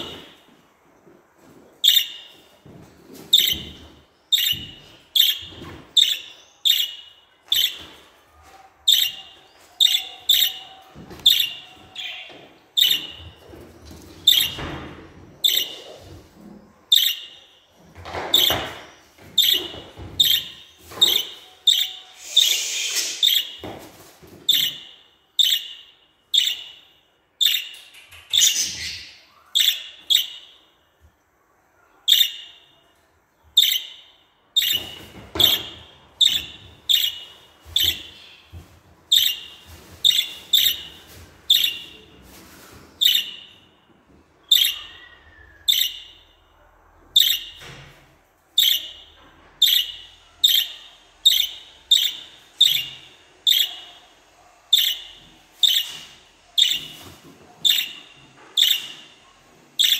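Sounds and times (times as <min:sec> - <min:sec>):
budgerigar calling: 0:21.1 - 0:23.6, 0:49.6 - 0:53.8.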